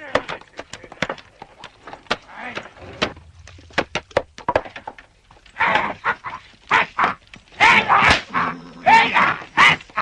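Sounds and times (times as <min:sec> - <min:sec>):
sharp knocks and clacks: 0:00.1 - 0:05.1.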